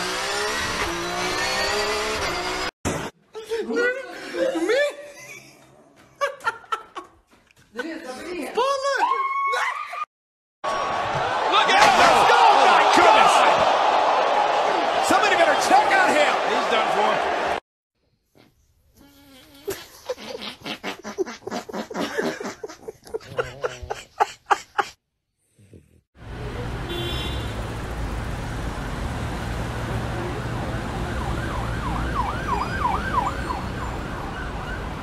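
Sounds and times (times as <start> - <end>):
street noise: 26.2 - 35.0
siren wailing: 30.3 - 35.0.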